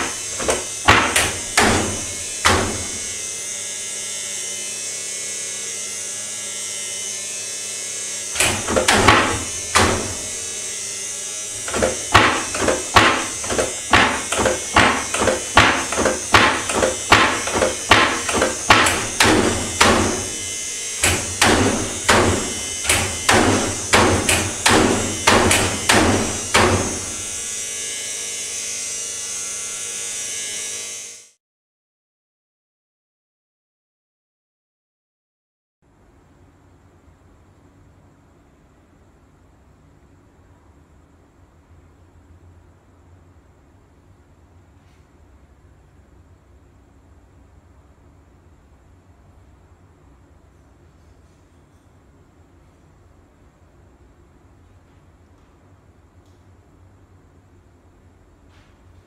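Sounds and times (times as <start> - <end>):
cabinet door banging: 0.0 - 3.0, 8.4 - 10.3, 11.6 - 20.4, 21.0 - 27.2.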